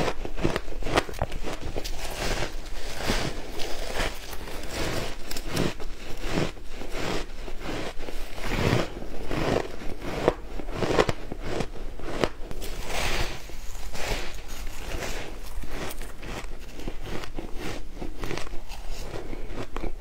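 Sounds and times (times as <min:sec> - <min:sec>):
chewing and crunching shaved ice: 0:00.0 - 0:20.0.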